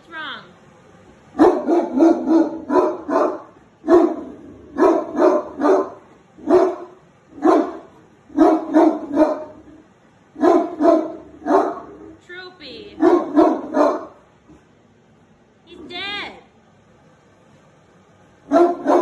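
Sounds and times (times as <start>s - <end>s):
dog barking: 1.4s - 9.6s, 10.4s - 12.0s, 13.0s - 14.2s, 18.5s - 19.0s.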